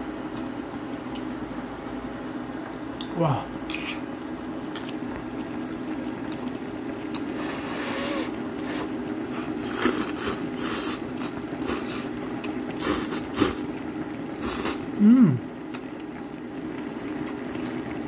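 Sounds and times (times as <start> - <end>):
low hum of boiling pot: 0.0 - 18.0
slurping noodles: 7.2 - 13.7, 14.4 - 14.9.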